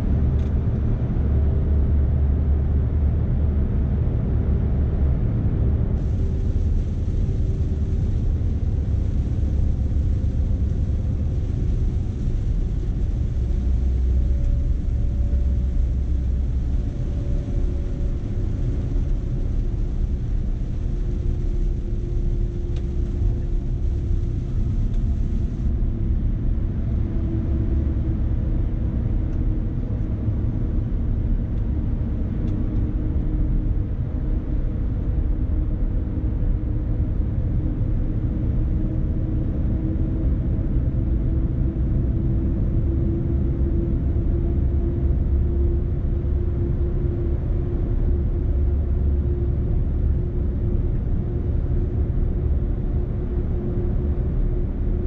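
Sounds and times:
diesel truck engine drone: 0.0 - 55.0.

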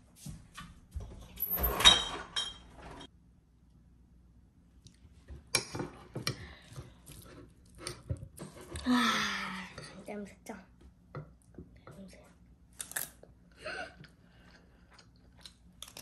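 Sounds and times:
dishes and glass clattering: 1.4 - 3.1.

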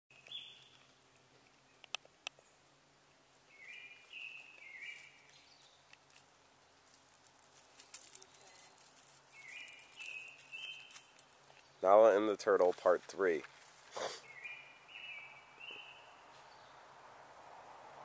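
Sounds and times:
faint whistled bird song: 0.1 - 0.8, 3.5 - 5.9, 9.3 - 11.2, 14.2 - 16.8
crackling of mulch: 0.1 - 2.5, 3.2 - 14.3
sharp clicks: 1.4 - 2.4.

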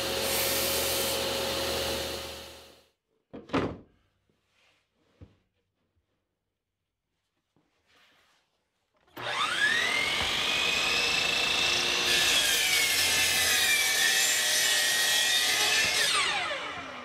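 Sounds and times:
miter saw whining: 9.1 - 17.0
saw blade cutting plywood: 9.2 - 17.0.

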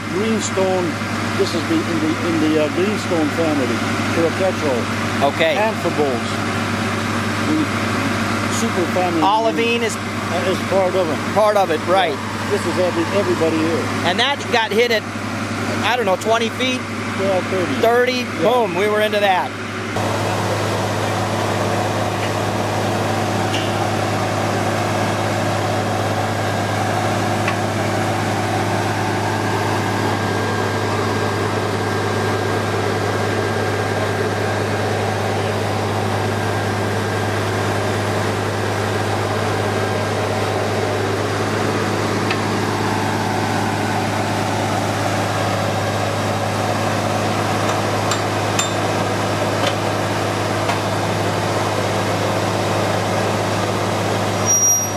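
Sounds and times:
drilling rig engine drone: 0.0 - 54.9.

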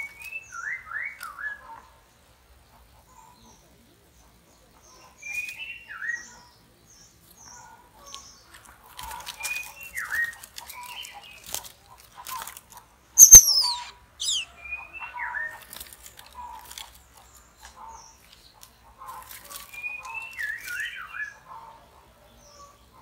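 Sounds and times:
high descending squeaks: 13.2 - 14.5
bird whistling calls: 13.2 - 14.8.

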